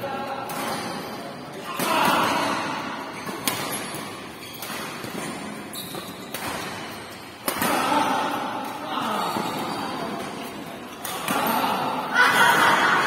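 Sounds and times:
rackets striking shuttlecock: 0:03.2 - 0:07.9.

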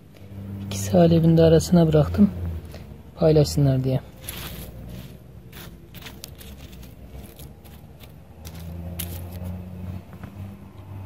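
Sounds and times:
low engine hum: 0:00.0 - 0:11.0
fingers scraping stony soil: 0:04.1 - 0:09.8.

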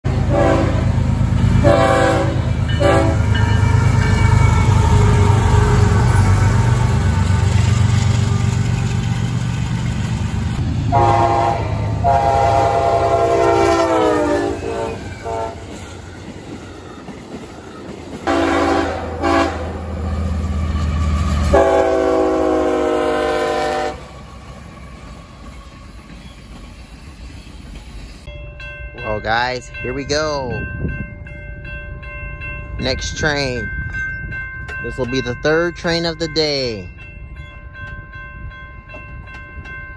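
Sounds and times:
locomotive air horn: 0:00.1 - 0:01.0, 0:01.6 - 0:03.3, 0:10.9 - 0:15.8, 0:18.2 - 0:19.8, 0:21.4 - 0:24.1
locomotives rumbling past: 0:00.1 - 0:28.3.

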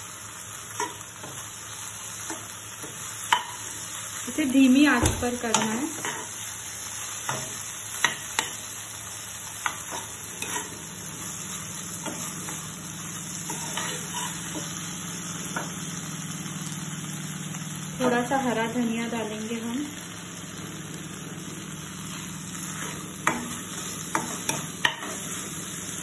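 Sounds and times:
light sizzle: 0:00.0 - 0:26.0
metal spoon scraping a pan: 0:05.5 - 0:06.4, 0:09.6 - 0:11.4, 0:12.0 - 0:12.7, 0:13.3 - 0:14.8, 0:22.1 - 0:25.4.

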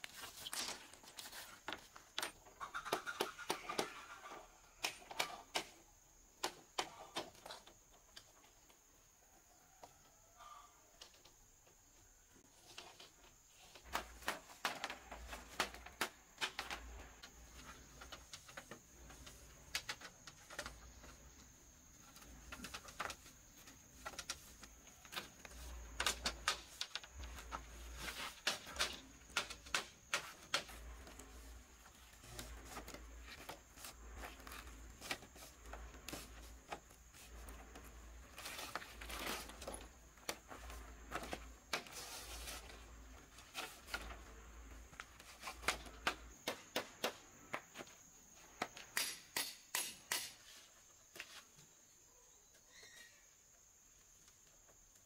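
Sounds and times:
bamboo strips clacking: 0:22.0 - 0:47.9
metal blade tapping bamboo: 0:49.0 - 0:50.4.

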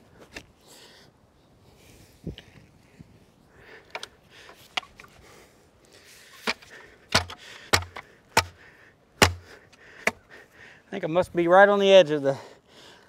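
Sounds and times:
post hole digger clicks and scrapes: 0:06.4 - 0:08.5
heavy thuds into soil: 0:06.4 - 0:08.6, 0:09.2 - 0:10.2.

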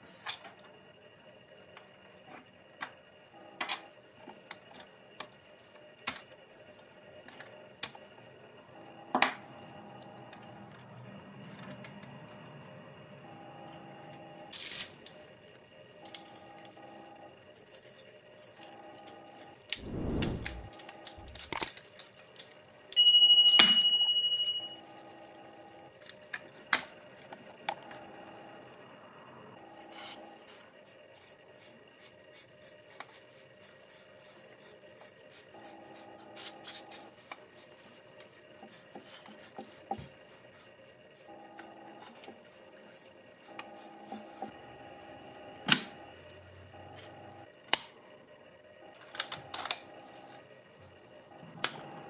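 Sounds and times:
metal parts clicking and scraping: 0:20.4 - 0:22.2
sharp metallic ring: 0:23.0 - 0:24.8.

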